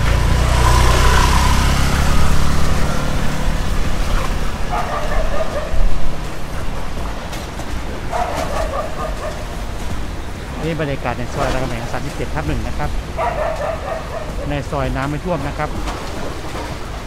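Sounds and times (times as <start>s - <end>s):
boat engine rumble: 0.0s - 17.0s
choppy water: 0.0s - 17.0s
dog barking: 4.6s - 6.1s, 8.1s - 9.6s, 13.1s - 14.7s.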